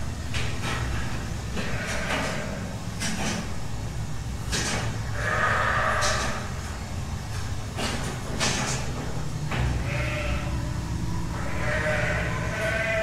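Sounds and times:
milking machinery humming: 0:00.0 - 0:13.0
goat bleating: 0:09.7 - 0:10.6, 0:11.3 - 0:13.0.

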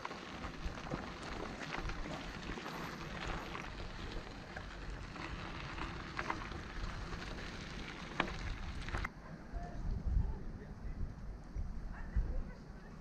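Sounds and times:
footsteps crunching on gravel: 0:00.0 - 0:09.1
outdoor rustling: 0:00.0 - 0:13.0.

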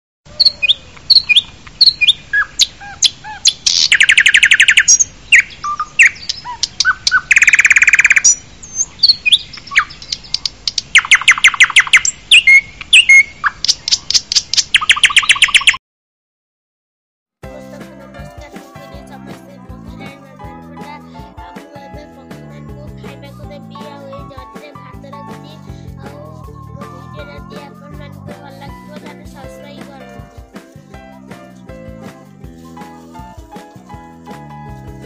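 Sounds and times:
rapid bird trills: 0:00.3 - 0:15.8
warbler singing: 0:00.3 - 0:15.8.

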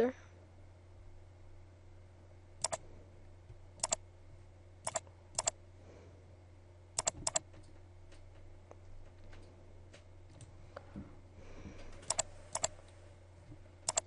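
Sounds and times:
low steady hum: 0:00.0 - 0:14.0
mouse button clicking: 0:12.1 - 0:12.7.

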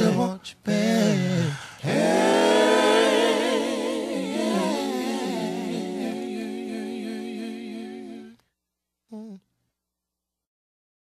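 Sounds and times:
male vocal harmonies humming: 0:00.0 - 0:03.3.

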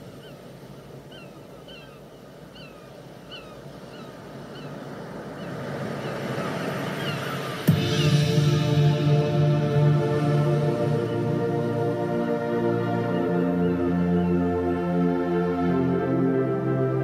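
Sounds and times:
wash of noise: 0:03.6 - 0:17.0
loud music: 0:07.6 - 0:17.0.

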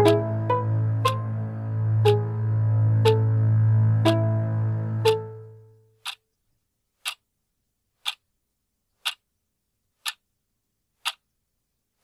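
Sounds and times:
clock ticking: 0:00.0 - 0:01.3, 0:02.0 - 0:02.4, 0:03.0 - 0:03.4, 0:04.0 - 0:06.4, 0:07.0 - 0:07.3, 0:08.0 - 0:08.3, 0:09.0 - 0:09.3, 0:10.0 - 0:10.3, 0:11.0 - 0:11.3.

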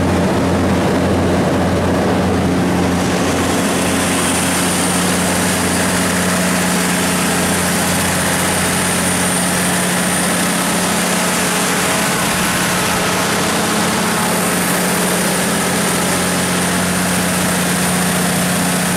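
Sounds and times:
diesel generator running: 0:00.0 - 0:18.9.

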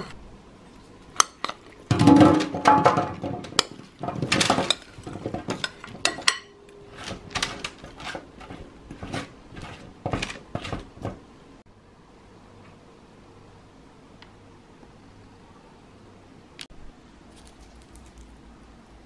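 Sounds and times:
spoon clattering and scraping vegetables: 0:00.0 - 0:11.3.

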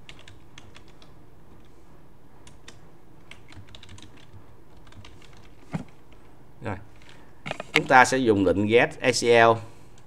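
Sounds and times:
keyboard keys clicking: 0:00.0 - 0:01.1, 0:02.4 - 0:05.6
low background hiss: 0:00.0 - 0:10.0.

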